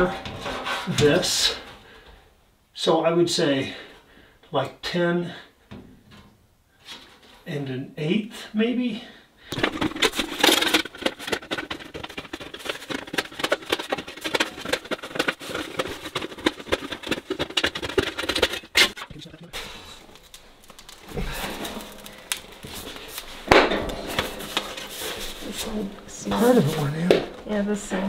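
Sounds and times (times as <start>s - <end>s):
sheet metal clicking and rattling: 9.5s - 19.1s.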